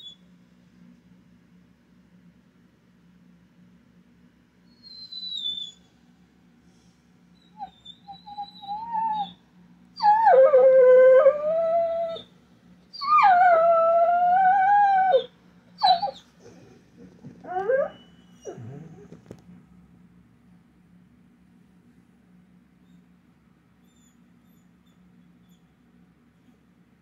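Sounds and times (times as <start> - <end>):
dog whining: 4.7 - 5.9, 7.4 - 9.4, 10.0 - 12.3, 12.9 - 19.3, 23.8 - 25.7
dog yelping: 4.8 - 5.8, 7.4 - 9.4, 12.9 - 16.3
dog howling: 7.5 - 9.4, 10.0 - 12.3, 12.9 - 16.7, 17.4 - 19.2.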